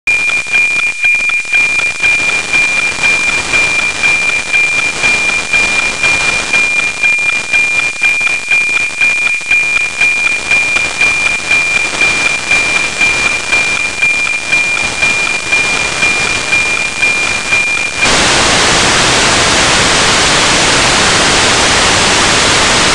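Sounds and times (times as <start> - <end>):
pulsing high radio tone: 0.1 - 22.9
radio static hiss: 1.8 - 22.9.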